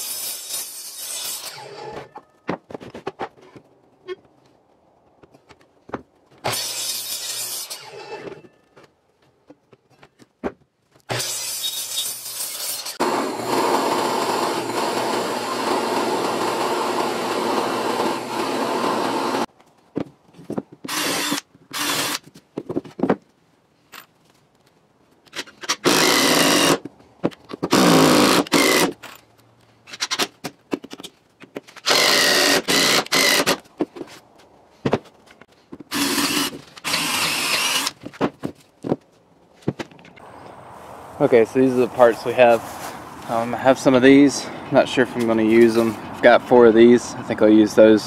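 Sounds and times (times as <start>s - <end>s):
drill press cutting wood: 11.2s - 19.4s
cordless drill drilling: 12.8s - 19.5s, 20.9s - 22.2s, 25.8s - 26.8s, 27.7s - 28.9s, 31.8s - 33.6s, 35.9s - 37.9s.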